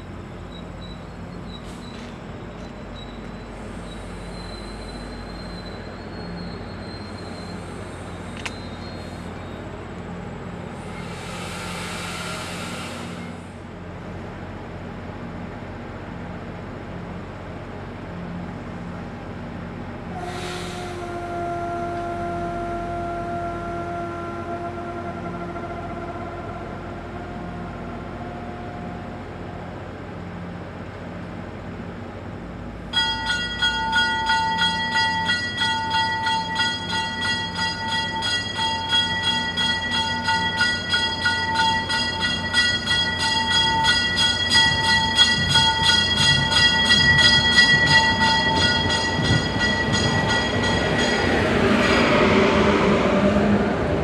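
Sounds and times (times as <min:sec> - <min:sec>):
train pulling in: 0:00.0 - 0:54.0
train bell ringing: 0:32.9 - 0:52.4.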